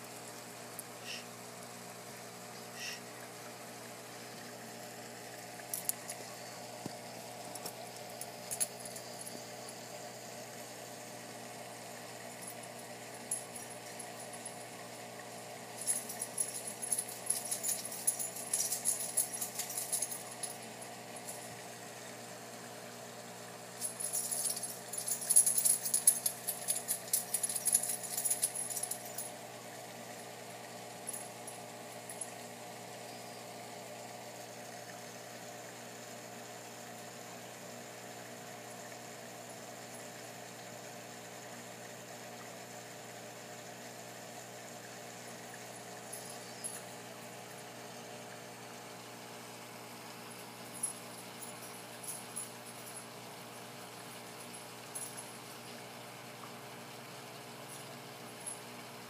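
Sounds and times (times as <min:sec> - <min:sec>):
steady mechanical hum: 0:00.0 - 0:59.0
high-pitched crackling rattle: 0:15.8 - 0:20.7, 0:23.8 - 0:29.3.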